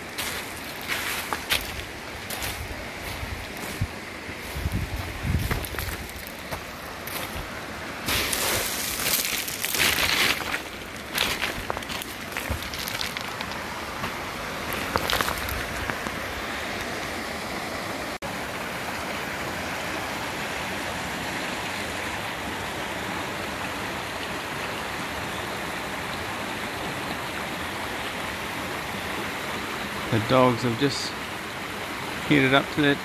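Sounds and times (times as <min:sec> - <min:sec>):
water rushing over rocks: 0:00.0 - 0:33.0
footsteps on stones: 0:00.2 - 0:16.2.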